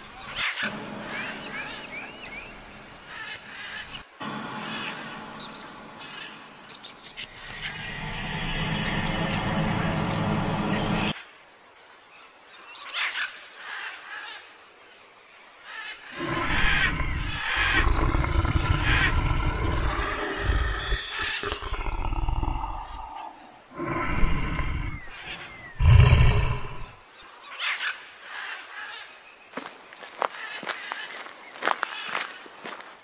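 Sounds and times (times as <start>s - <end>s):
deep rough animal roars: 16.2s - 27.0s.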